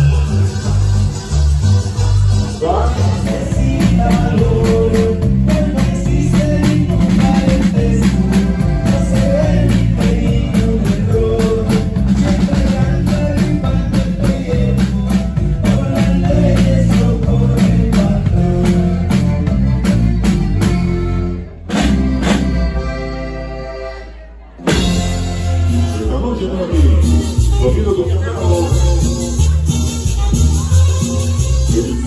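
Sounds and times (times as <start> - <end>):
drum kit beat: 0.0 - 23.8, 24.5 - 32.0
live band playing: 0.0 - 32.0
person singing: 2.6 - 19.8.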